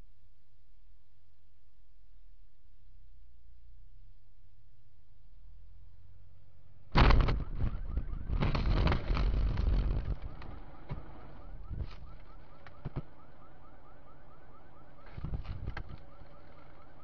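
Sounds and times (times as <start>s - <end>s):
vehicle crash: 6.9s - 13.0s
metal crunching and scraping: 6.9s - 13.1s
car alarm chirping: 10.0s - 17.0s.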